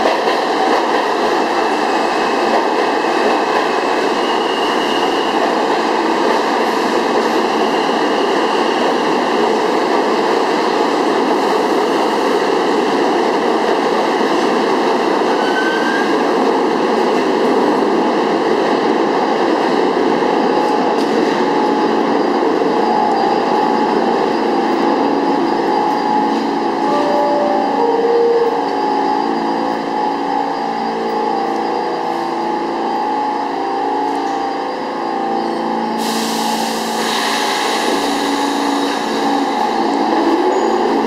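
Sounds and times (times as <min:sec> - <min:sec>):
subway train braking: 0:00.0 - 0:41.0
train equipment humming: 0:19.8 - 0:41.0.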